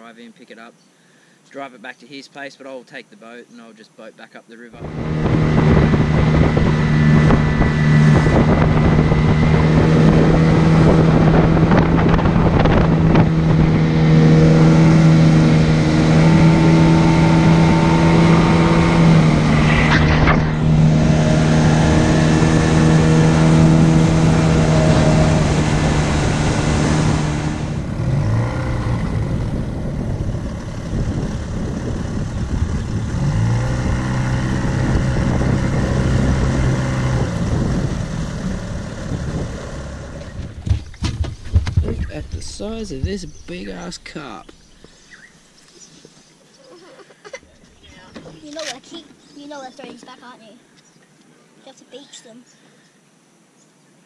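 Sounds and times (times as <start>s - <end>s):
outboard motor running: 4.8s - 40.9s
wind on microphone: 4.8s - 45.2s.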